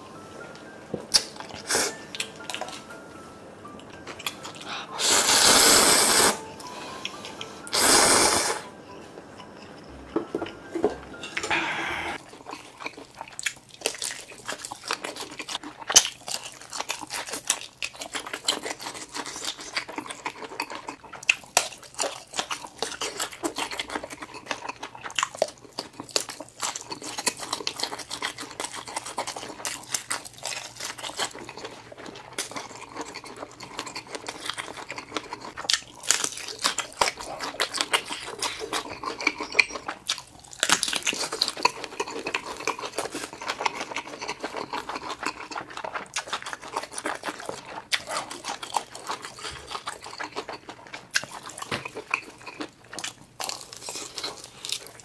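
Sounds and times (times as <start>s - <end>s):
chewing with wet mouth sounds: 1.1s - 3.0s, 3.6s - 5.0s, 11.4s - 55.0s
slurping noodles: 4.8s - 6.4s, 7.6s - 8.7s.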